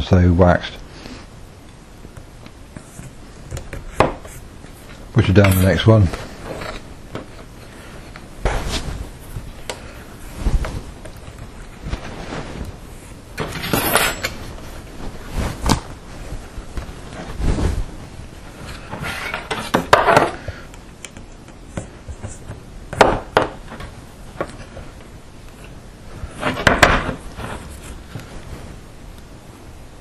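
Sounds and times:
cables rustling: 1.7s - 22.7s.

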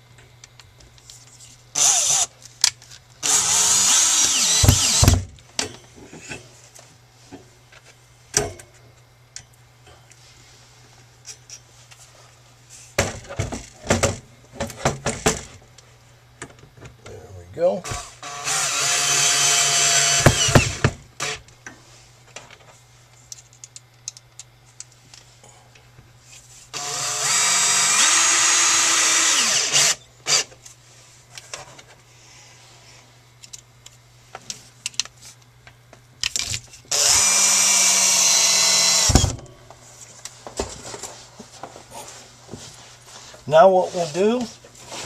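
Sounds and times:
cordless drill driving screws: 1.8s - 2.3s, 3.2s - 5.2s, 17.9s - 21.4s, 26.8s - 30.5s, 36.9s - 39.3s.

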